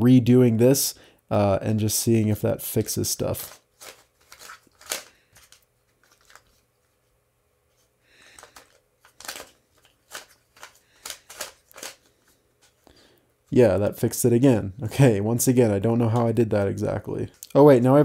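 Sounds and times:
plastic puzzle clicking: 8.4 - 12.1.

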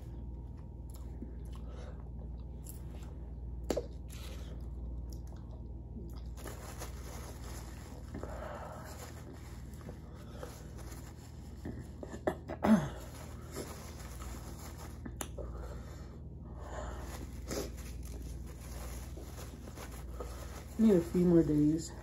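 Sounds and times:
paper napkin crumpling: 6.2 - 12.0, 12.8 - 15.2, 16.8 - 22.0.

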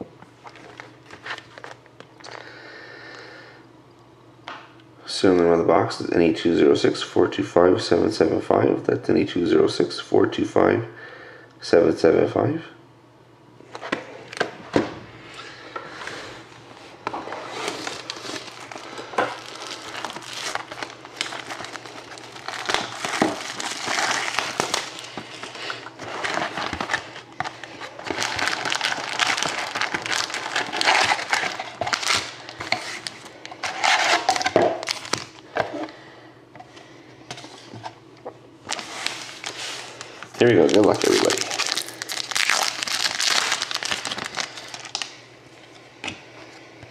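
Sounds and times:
foil packs crinkling: 0.4 - 2.5, 17.2 - 35.8, 38.7 - 45.2.

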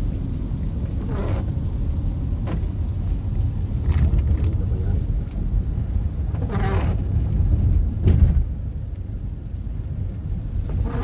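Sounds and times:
tyres and engine rumble: 0.0 - 11.0
thump: 8.0 - 8.4.

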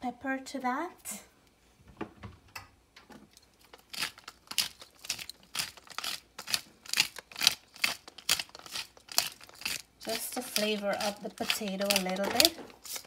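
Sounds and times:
pepper grinder grinding: 3.3 - 13.0.

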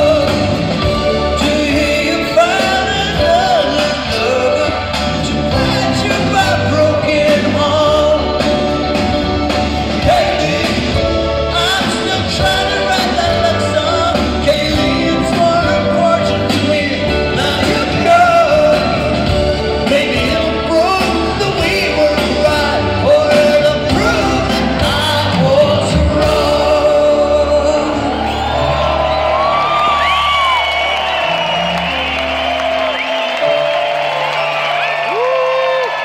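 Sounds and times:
man singing: 0.0 - 28.8
live rock band: 0.0 - 36.0.

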